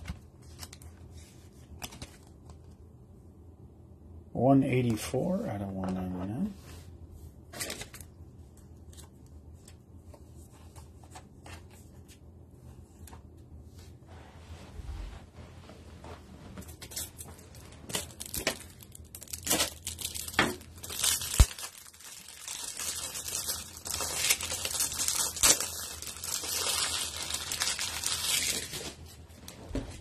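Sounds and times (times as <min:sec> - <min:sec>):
foil wrapper crinkling and tearing: 0:16.8 - 0:29.0.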